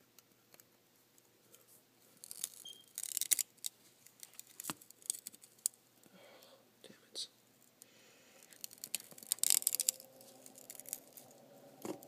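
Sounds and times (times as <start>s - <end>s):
tweezers scraping crystals: 2.2s - 5.7s, 8.5s - 12.0s.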